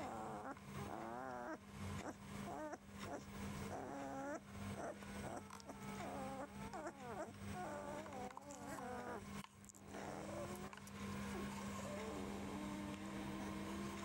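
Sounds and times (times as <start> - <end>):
puppies squeaking and whining: 0.0 - 10.7.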